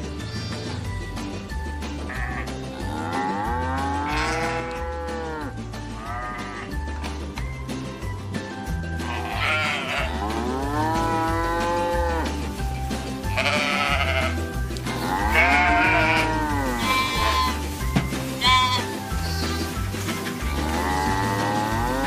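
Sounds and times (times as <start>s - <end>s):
sheep bleating: 0.0s - 0.8s, 2.0s - 6.8s, 9.0s - 12.3s, 13.2s - 17.8s, 18.4s - 19.8s, 20.4s - 22.0s
background music with bass: 0.0s - 22.0s.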